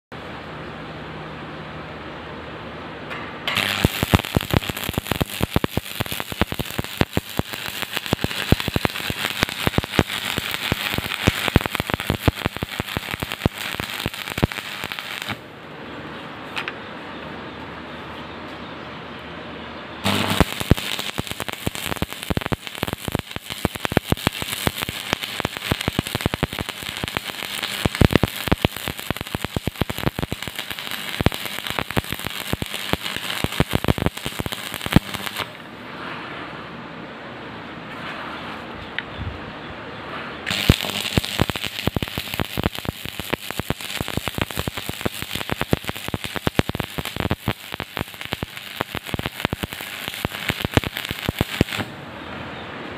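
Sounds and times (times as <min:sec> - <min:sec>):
welding arc crackling: 0:03.5 - 0:15.5, 0:20.0 - 0:35.7, 0:40.5 - 0:51.9.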